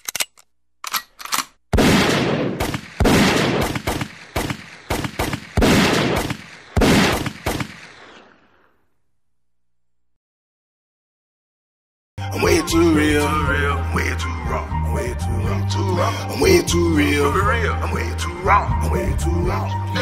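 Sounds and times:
heavy echoing gunshots: 0:01.7 - 0:08.4.

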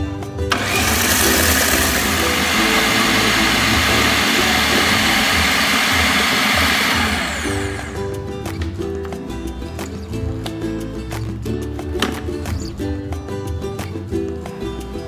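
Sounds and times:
food processor motor grinding: 0:00.5 - 0:08.1.

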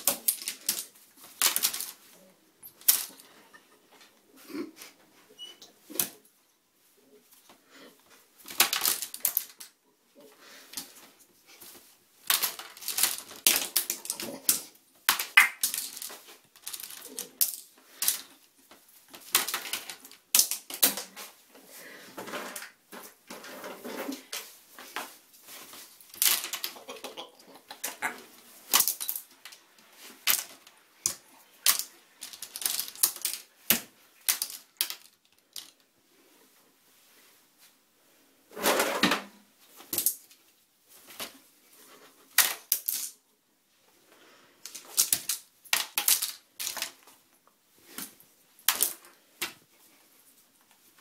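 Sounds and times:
plastic clothes pegs clattering: 0:12.2 - 0:18.4, 0:28.7 - 0:35.8.

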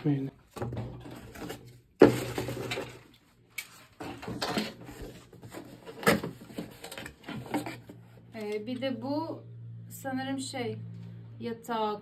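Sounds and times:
cardboard rustling and scraping: 0:00.5 - 0:08.4.

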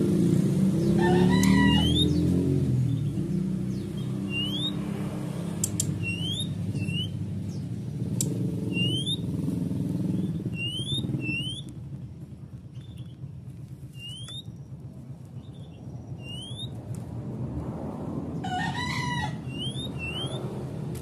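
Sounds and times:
low engine-like hum: 0:00.0 - 0:21.0
bird whistled calls: 0:01.1 - 0:02.3, 0:04.0 - 0:04.8, 0:05.8 - 0:07.2, 0:08.6 - 0:09.4, 0:10.1 - 0:11.8, 0:13.9 - 0:14.6, 0:15.5 - 0:16.8, 0:19.4 - 0:20.5
sharp clicks: 0:05.5 - 0:06.0, 0:08.1 - 0:08.4.

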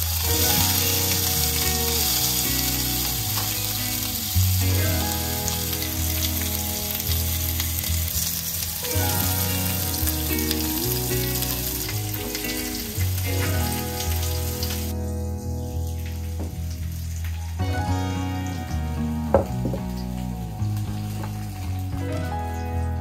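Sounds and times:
fish sizzling in oil: 0:00.0 - 0:17.6
soft background music: 0:00.0 - 0:23.0.

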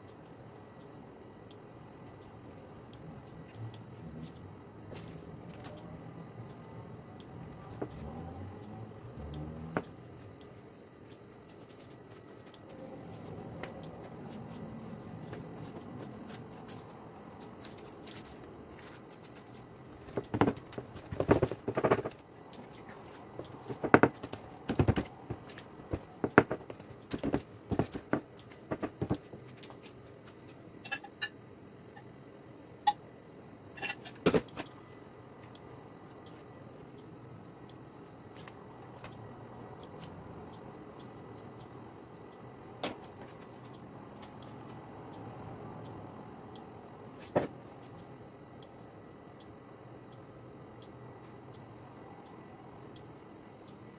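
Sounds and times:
hands pressing dough: 0:18.8 - 0:30.3.

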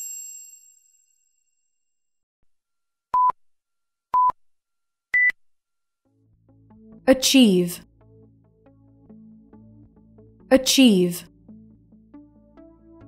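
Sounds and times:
chime: 0:00.0 - 0:01.8.

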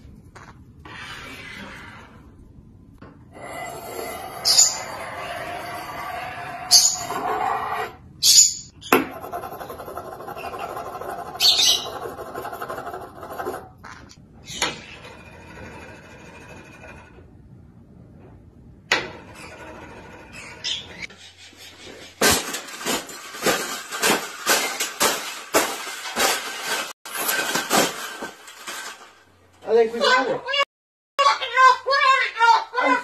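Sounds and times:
high-pitched squeaks: 0:04.3 - 0:13.6
spoon scraping on wood: 0:09.1 - 0:14.1.

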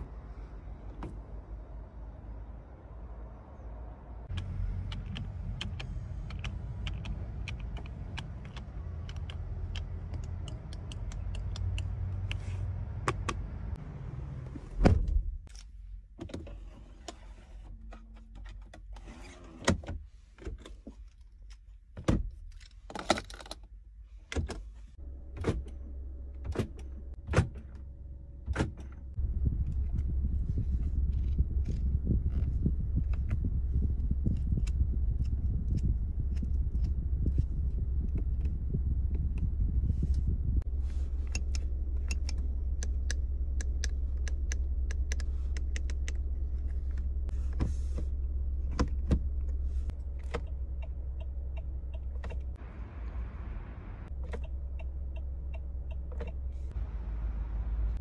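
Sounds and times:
low hum: 0:27.8 - 0:58.0.

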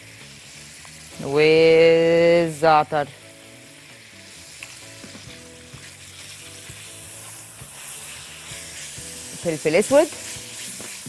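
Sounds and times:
chicken sizzling in oil: 0:00.0 - 0:11.0
spatula scraping pan: 0:05.8 - 0:11.0.

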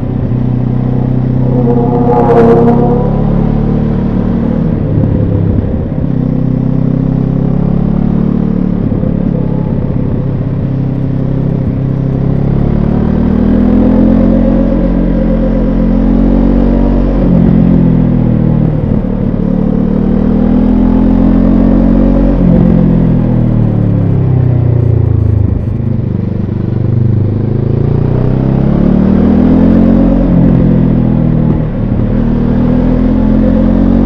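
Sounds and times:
motorcycle engine revving: 0:00.0 - 0:24.1.

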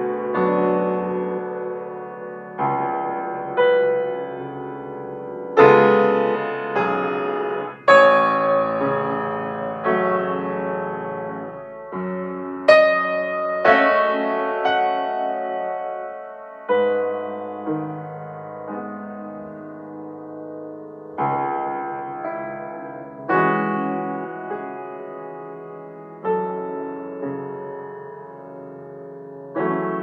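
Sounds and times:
slow upright piano melody: 0:00.0 - 0:30.0.

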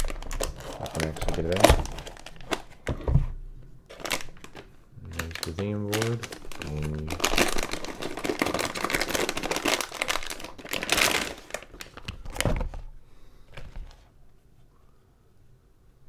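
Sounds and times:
plastic bag crinkling: 0:00.0 - 0:02.9, 0:03.9 - 0:12.8.

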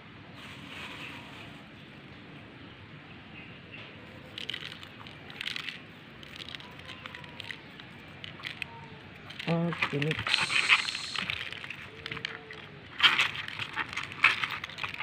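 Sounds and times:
coarse salt grains crunching: 0:04.2 - 0:15.0.

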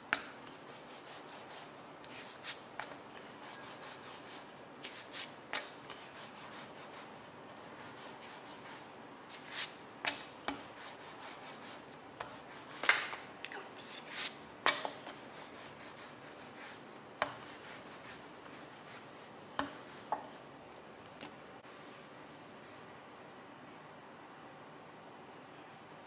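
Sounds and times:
rolling pin rubbing over dough: 0:10.5 - 0:12.8, 0:15.1 - 0:20.3.

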